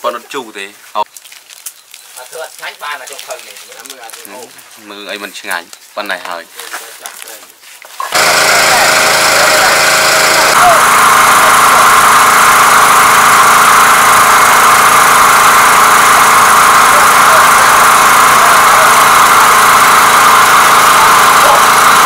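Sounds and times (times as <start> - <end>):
small petrol engine running: 8.0 - 22.0.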